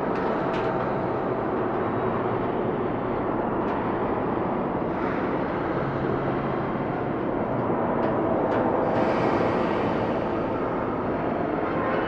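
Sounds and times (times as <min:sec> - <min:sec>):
dense industrial room drone: 0:00.0 - 0:12.0.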